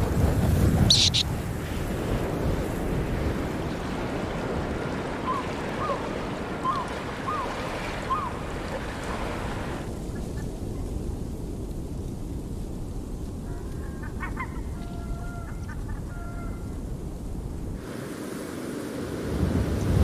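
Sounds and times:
wind rushing: 0.0 - 5.2
water lapping on shore: 0.0 - 10.0
bird calls: 0.9 - 1.2, 6.6 - 8.4.

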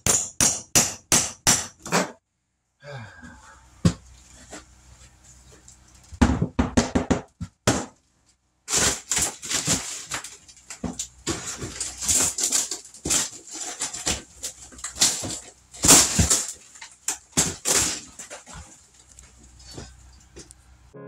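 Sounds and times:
demolition scraping and cracking: 8.7 - 20.6.

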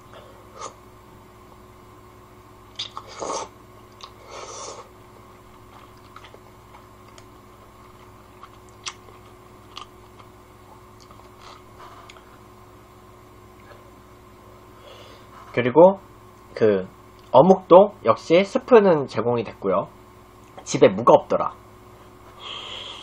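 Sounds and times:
chewing: 3.9 - 4.2, 5.7 - 12.3.

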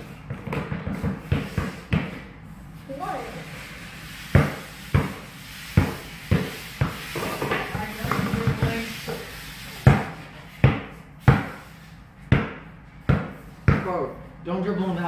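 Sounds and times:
basketball bouncing on tile floor: 0.0 - 2.2, 4.3 - 5.2, 5.8 - 11.6, 12.2 - 14.0.

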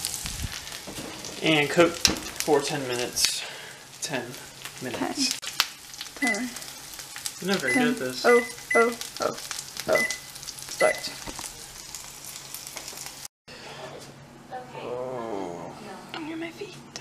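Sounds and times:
microwave keypad beeps: 6.2 - 6.5, 7.6 - 9.0, 9.9 - 11.2.

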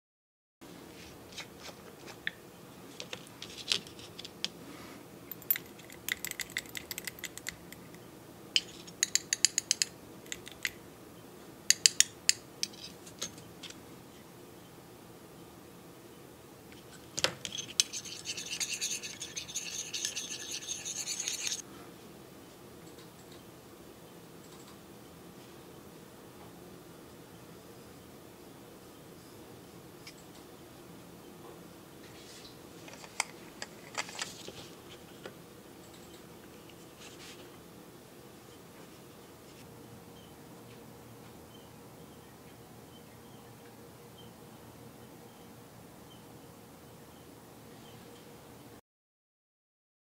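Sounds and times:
faint steady hum: 0.6 - 48.8
spatula scraping metal lid: 17.5 - 21.6.

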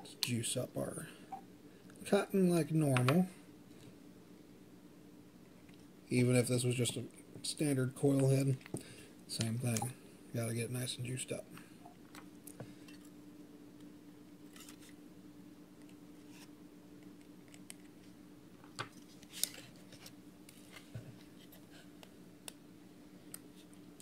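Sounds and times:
steady low hum: 0.0 - 24.0
clicks and scrapes of handling: 14.5 - 15.0.

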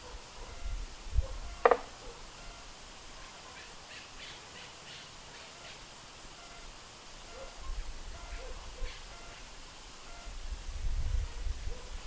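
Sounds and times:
wind rumble on microphone: 0.4 - 1.7, 10.2 - 12.0.

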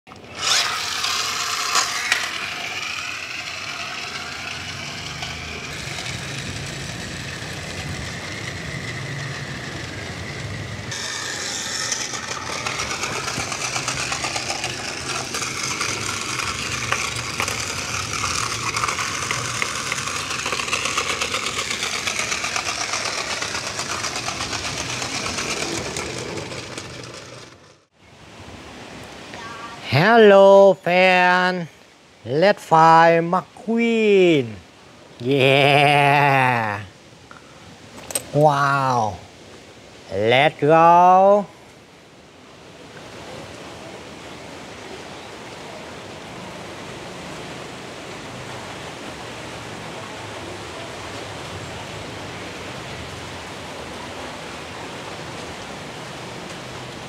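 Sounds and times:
small electric motor whirring: 0.1 - 27.8
plastic gears rattling: 0.4 - 27.8.

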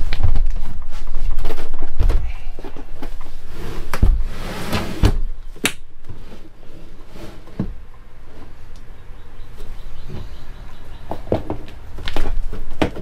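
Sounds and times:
battery scraping across floor: 3.2 - 5.1, 6.2 - 7.6.

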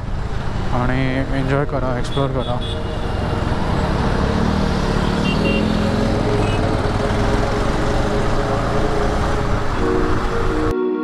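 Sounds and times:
wind and road noise: 0.0 - 10.7
motorcycle engine: 2.6 - 10.4.

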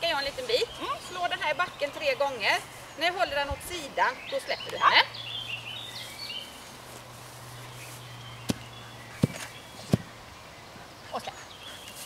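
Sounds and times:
stick knocking on ground: 8.5 - 10.1.

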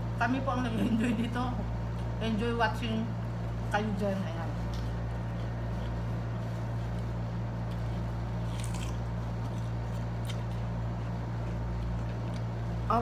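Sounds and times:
air conditioner humming: 0.0 - 13.0
faint chewing: 4.6 - 12.6.

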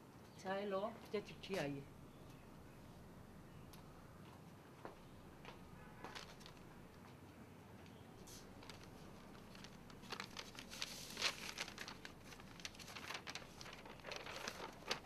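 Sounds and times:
paper crinkling and rustling: 6.0 - 6.7, 8.2 - 15.0.

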